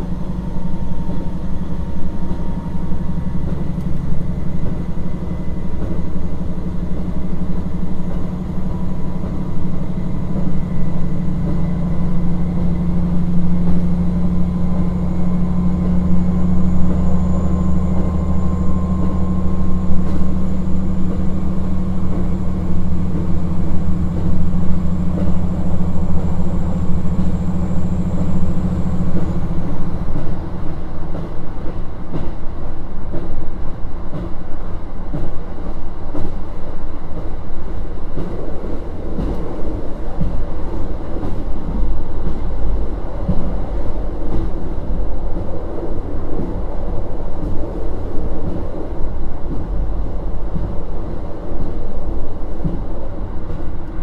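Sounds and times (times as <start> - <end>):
diesel engine humming: 0.0 - 32.1
rail joint clicks: 0.0 - 54.0
train wheels rumbling: 0.0 - 54.0.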